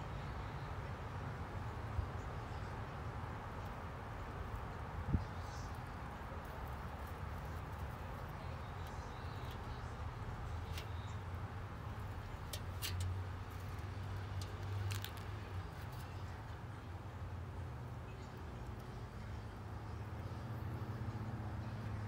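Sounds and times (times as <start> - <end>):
rabbit scratching in soil: 3.6 - 16.8.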